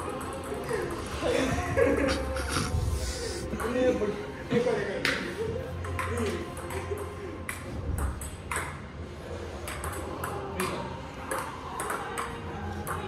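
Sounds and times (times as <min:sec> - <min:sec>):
table tennis balls clicking: 0:00.0 - 0:01.0, 0:05.8 - 0:08.8.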